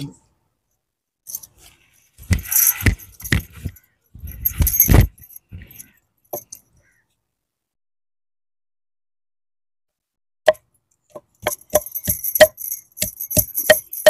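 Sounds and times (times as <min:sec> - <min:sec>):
bangles jingling: 0:01.3 - 0:06.7, 0:11.2 - 0:14.0
pestle pounding in wooden mortar: 0:02.2 - 0:03.7, 0:11.2 - 0:14.0.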